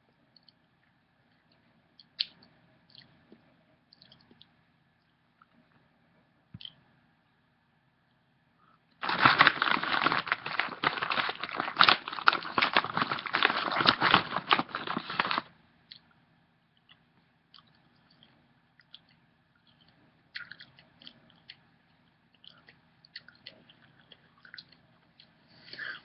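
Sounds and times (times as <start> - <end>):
loud crinkling and crackling: 9.0 - 15.5.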